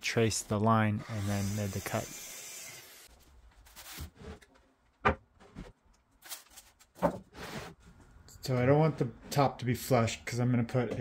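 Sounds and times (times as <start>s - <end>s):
wooden panels and tools knocking: 5.0s - 5.8s.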